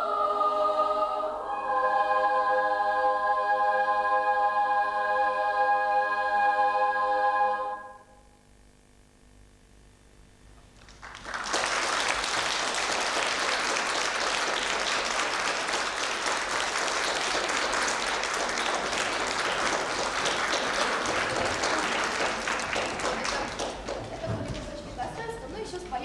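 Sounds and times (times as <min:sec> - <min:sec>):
choir final chord: 0:00.0 - 0:08.3, 0:12.2 - 0:24.0
audience applause: 0:10.8 - 0:25.4.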